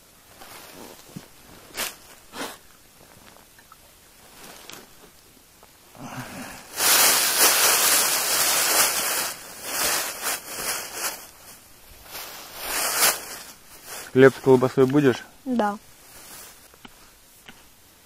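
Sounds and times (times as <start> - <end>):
loud rustling and crackling: 0.2 - 3.6, 6.5 - 16.8.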